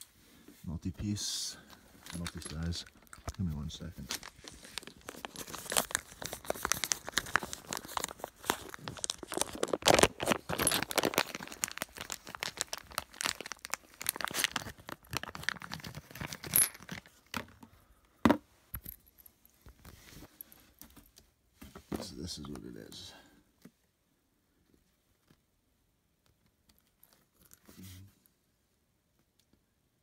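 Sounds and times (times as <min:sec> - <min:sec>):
plastic packaging crinkling: 0:02.0 - 0:17.2.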